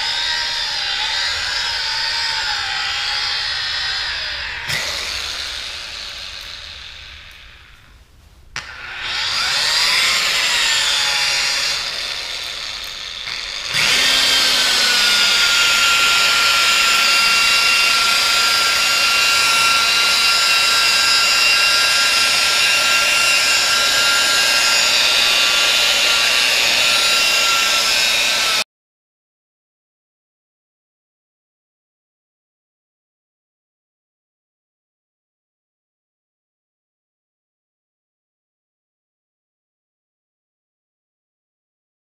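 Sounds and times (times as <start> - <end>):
rotary polisher whining: 0.0 - 28.6.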